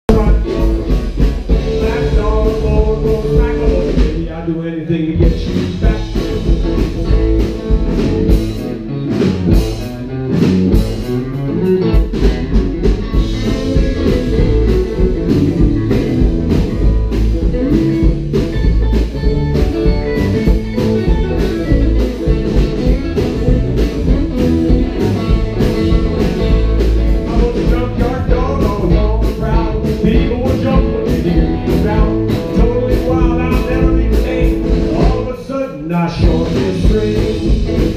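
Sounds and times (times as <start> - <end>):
rockabilly band playing: 0.0 - 37.9.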